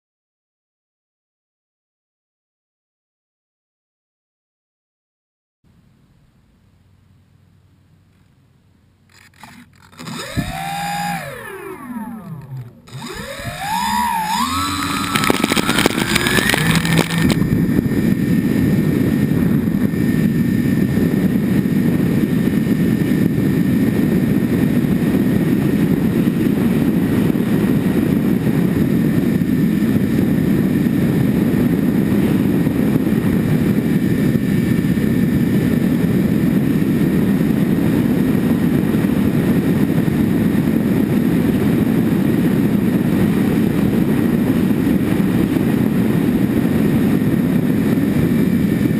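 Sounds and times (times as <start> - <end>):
wind and propeller rush: 5.8 - 48.9
propeller motors whining: 6.8 - 48.9.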